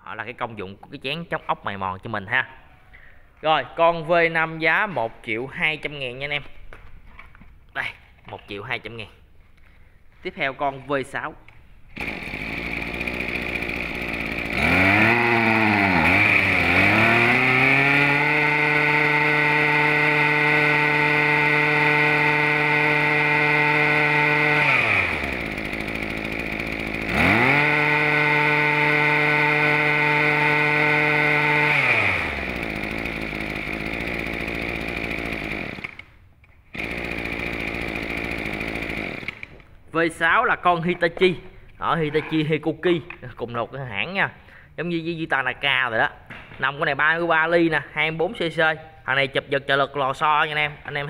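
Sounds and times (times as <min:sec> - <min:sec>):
brush cutter engine revving: 0:11.9 - 0:39.7.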